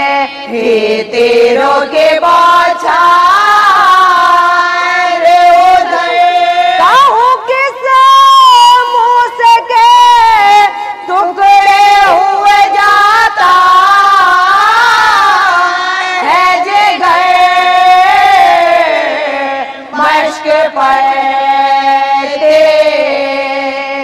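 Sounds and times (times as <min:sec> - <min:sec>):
woman chanting: 0:00.0 - 0:24.0.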